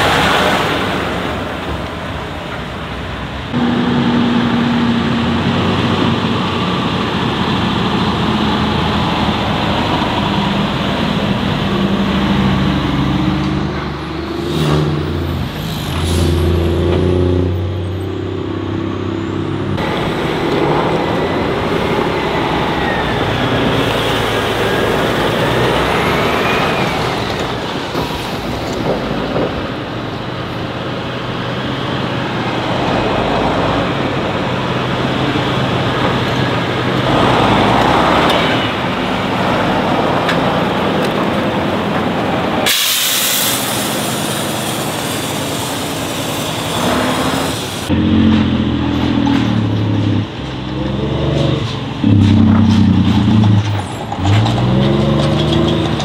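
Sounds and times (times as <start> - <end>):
diesel truck engines under load: 0.0 - 56.0
whine: 3.6 - 5.7.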